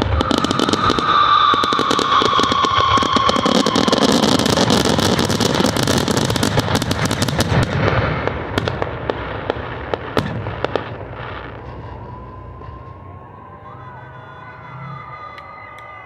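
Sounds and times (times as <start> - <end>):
fireworks crackling and bursting: 0.0 - 16.0
low rumble: 10.2 - 15.2.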